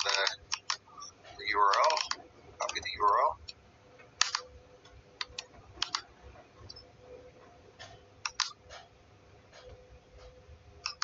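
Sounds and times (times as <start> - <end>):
computer mouse clicking: 0.0 - 1.1, 4.2 - 6.8, 7.8 - 8.9, 9.5 - 11.0
faint steady hum: 0.0 - 11.0.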